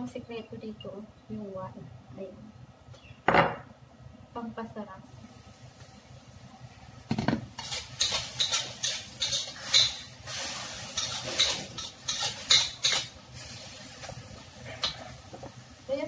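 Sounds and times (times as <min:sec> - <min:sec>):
metal spatula scraping a wok: 0:07.6 - 0:13.7.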